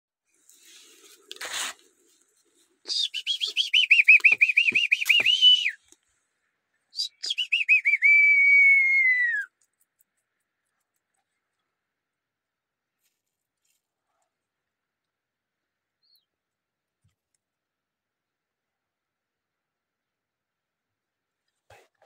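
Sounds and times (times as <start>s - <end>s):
brief rustle: 0.4s - 2.7s
person whistling trills: 2.9s - 5.8s, 7.0s - 9.5s.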